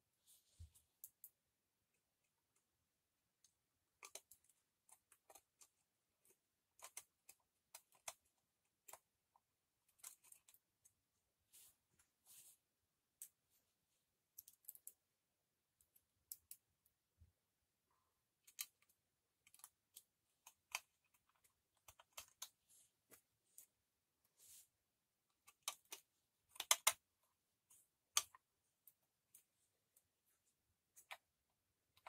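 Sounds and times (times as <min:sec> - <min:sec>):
small metal clicks and taps: 0:14.4 - 0:15.0, 0:25.4 - 0:27.0.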